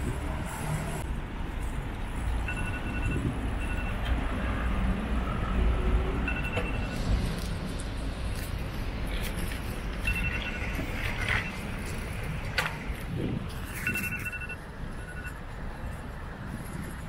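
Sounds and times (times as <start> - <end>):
street traffic rumble: 0.0 - 17.0
rapid electronic beeping: 10.0 - 11.7, 13.8 - 15.4.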